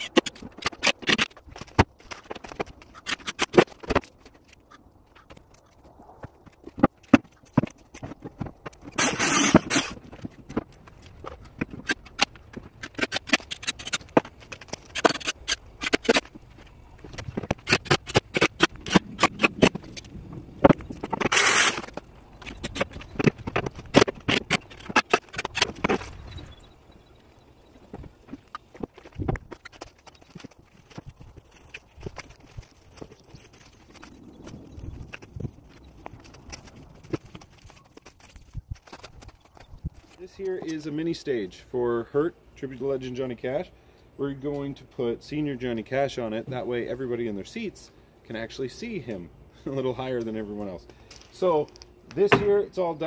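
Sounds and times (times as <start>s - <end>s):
boards knocking into place: 52.3s - 52.6s.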